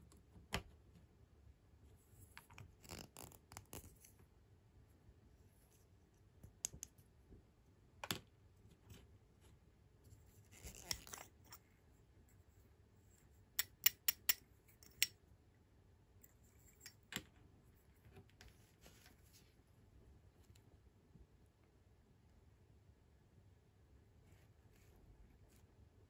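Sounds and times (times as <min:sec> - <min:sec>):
plastic toy parts clicking: 0:13.6 - 0:15.1.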